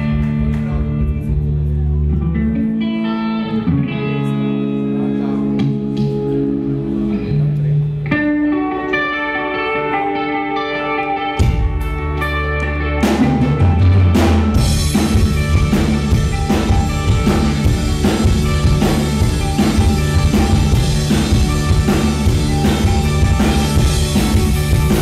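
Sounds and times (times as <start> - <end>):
electric guitars: 0.0 - 25.0
drum kit steady beat: 13.0 - 25.0.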